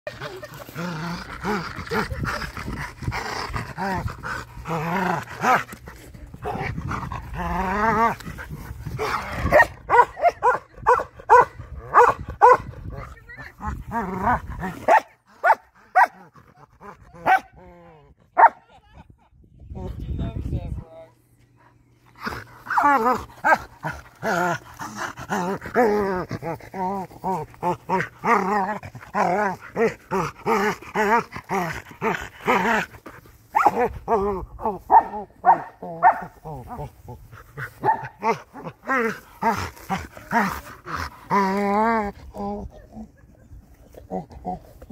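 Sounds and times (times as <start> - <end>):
dog barking: 9.5 - 12.6, 34.9 - 36.3.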